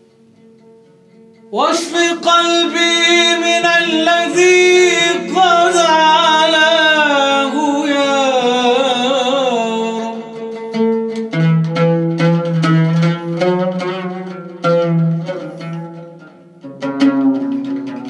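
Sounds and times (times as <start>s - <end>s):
plucked string instrument: 0.0s - 18.0s
man singing long wavering note: 1.5s - 10.8s.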